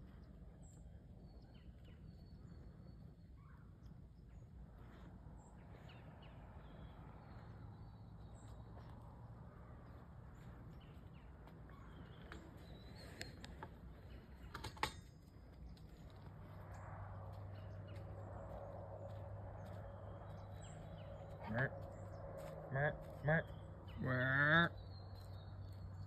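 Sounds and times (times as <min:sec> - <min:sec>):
low rumble: 0:15.1 - 0:24.0.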